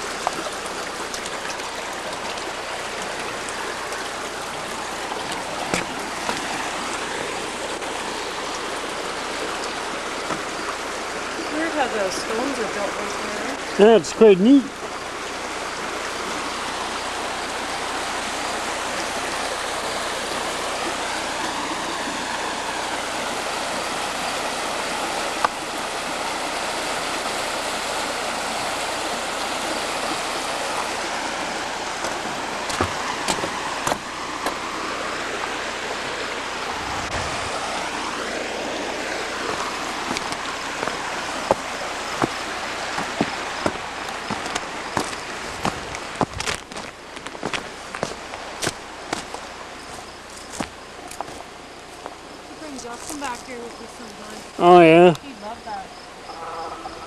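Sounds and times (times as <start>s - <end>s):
water flowing over rocks: 0.0s - 57.0s
footsteps on rock: 5.2s - 6.6s, 32.0s - 34.6s, 39.5s - 52.2s.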